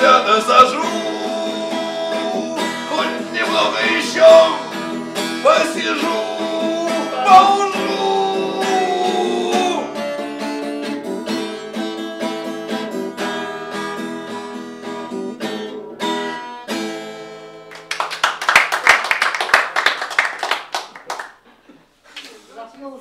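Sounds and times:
acoustic guitar strumming: 0:00.0 - 0:17.8
people clapping: 0:17.7 - 0:21.6.

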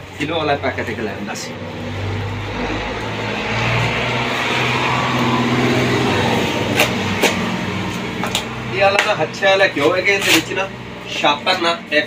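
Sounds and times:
vehicle passing by: 0:00.3 - 0:09.7.

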